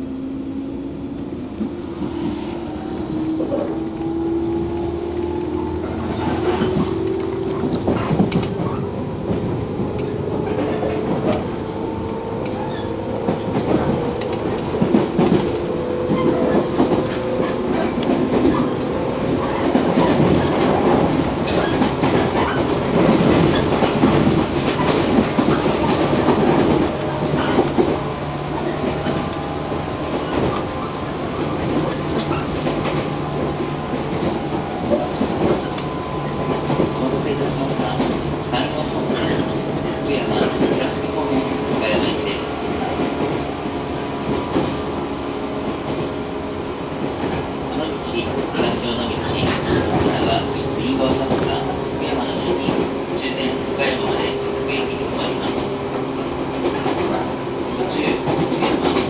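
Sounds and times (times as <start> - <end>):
train running rumble: 0.0 - 59.0.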